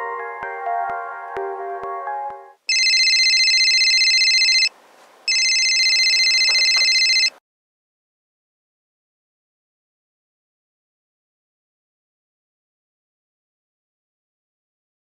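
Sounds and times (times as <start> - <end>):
cordless phone ringing: 2.7 - 4.7, 5.3 - 7.4.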